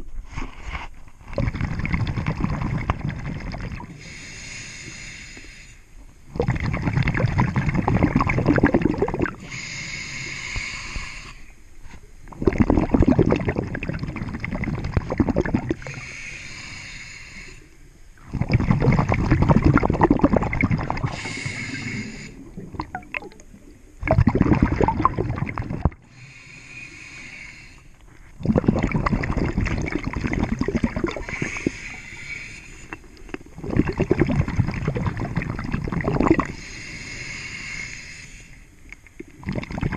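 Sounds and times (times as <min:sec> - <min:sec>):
bubbling exhalation underwater: 0:01.3 - 0:04.0, 0:06.3 - 0:09.5, 0:12.3 - 0:16.0, 0:18.2 - 0:26.1, 0:28.4 - 0:31.8, 0:33.4 - 0:36.6, 0:39.3 - 0:39.9
hissing regulator inhalation: 0:04.0 - 0:05.9, 0:09.2 - 0:11.6, 0:15.8 - 0:17.8, 0:21.0 - 0:22.6, 0:26.0 - 0:28.0, 0:31.0 - 0:34.2, 0:36.5 - 0:38.8.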